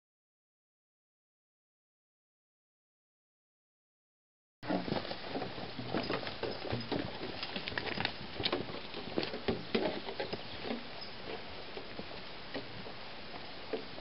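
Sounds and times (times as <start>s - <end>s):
footsteps on dirt trail: 4.6s - 14.0s.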